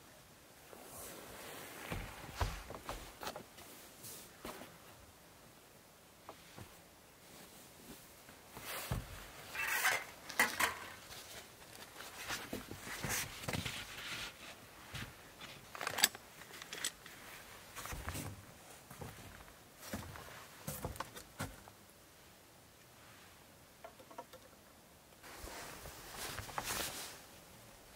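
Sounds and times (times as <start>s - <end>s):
camping gear being handled: 0.6s - 5.1s, 6.2s - 21.8s, 25.2s - 27.5s.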